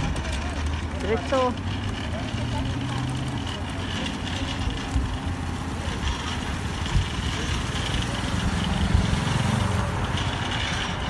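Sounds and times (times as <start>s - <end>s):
shopping cart wheels rattling: 0.0s - 11.0s.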